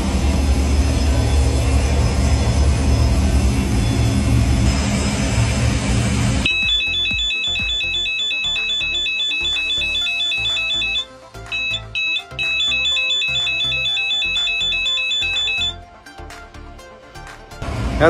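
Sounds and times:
high two-tone warning horn warble: 6.4s - 15.8s.

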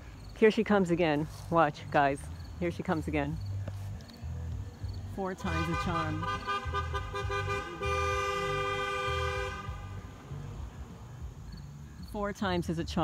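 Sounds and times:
car horn honking: 5.4s - 10.1s.

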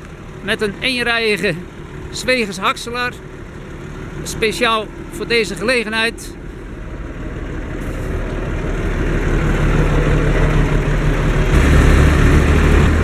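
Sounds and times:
diesel engine running: 0.0s - 13.0s
deeper hum: 6.4s - 13.0s
chopper running: 8.5s - 13.0s.

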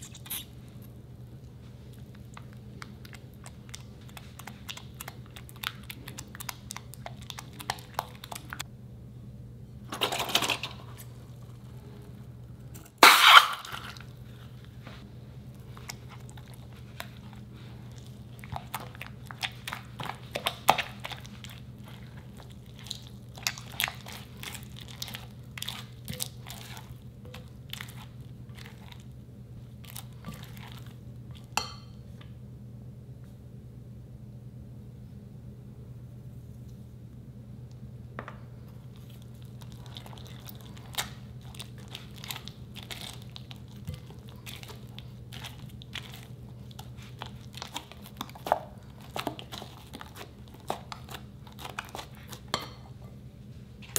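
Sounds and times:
spatula stirring crackly slime: 1.6s - 8.7s, 12.9s - 31.8s, 38.7s - 53.0s.

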